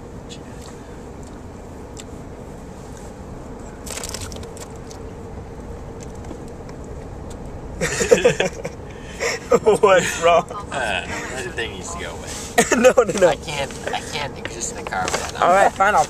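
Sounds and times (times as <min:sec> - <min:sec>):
car cabin road noise: 0:00.0 - 0:16.0
crackling rustle: 0:03.8 - 0:07.5
person laughing: 0:07.8 - 0:11.6.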